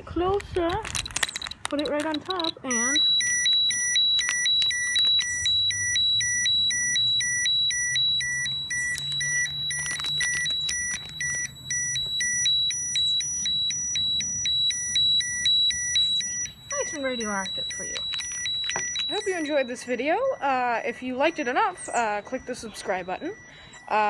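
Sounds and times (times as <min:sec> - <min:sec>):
two-tone alarm beeping: 0:00.8 - 0:24.0.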